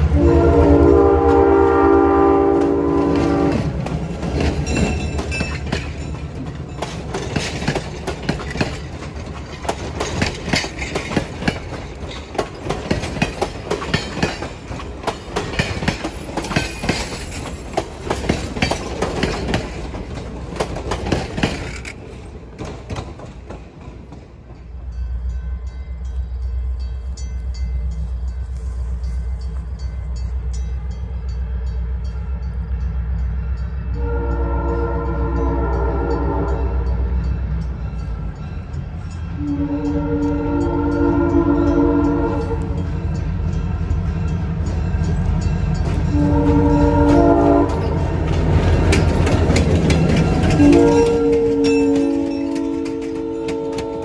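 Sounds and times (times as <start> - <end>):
train horn: 0.0 - 3.8, 31.4 - 37.1, 39.4 - 42.8, 46.1 - 48.2, 50.5 - 54.0
train wheels clicking over rail joints: 2.5 - 25.4, 42.5 - 54.0.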